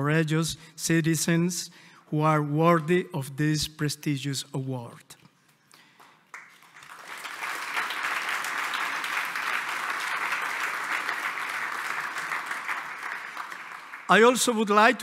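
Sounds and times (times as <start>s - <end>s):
audience applauding: 5.8s - 14.9s.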